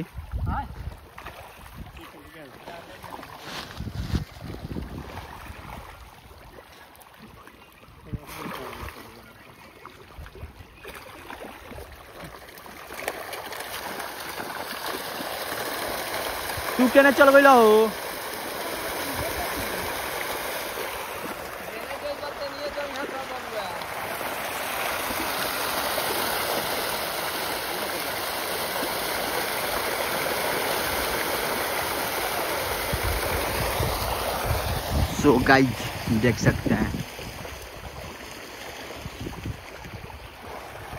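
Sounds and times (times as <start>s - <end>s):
fish thrashing water surface: 10.8s - 36.1s.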